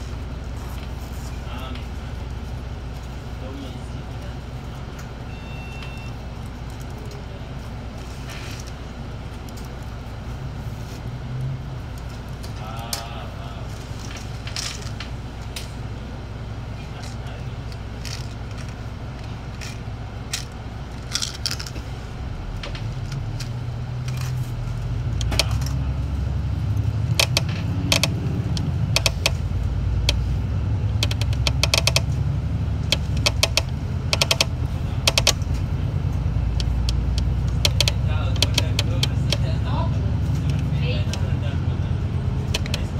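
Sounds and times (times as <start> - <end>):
bus engine and road rumble: 0.0 - 42.9
rattling clicks of loose fittings: 17.0 - 21.9, 27.1 - 29.4, 30.9 - 32.2, 32.9 - 39.5.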